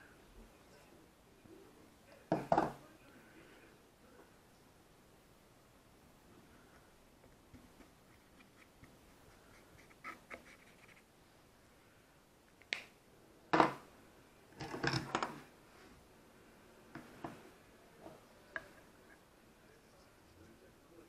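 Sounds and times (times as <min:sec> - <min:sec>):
objects knocking on wooden table: 0:02.3 - 0:02.8, 0:13.5 - 0:13.8.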